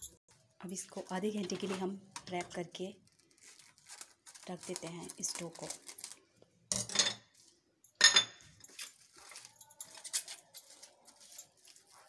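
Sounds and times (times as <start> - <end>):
cling film crinkling: 0.9 - 6.3, 8.7 - 12.0.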